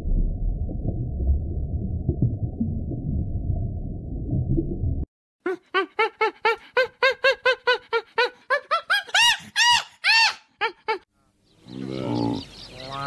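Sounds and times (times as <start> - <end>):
low underwater rumble: 0.0 - 5.1.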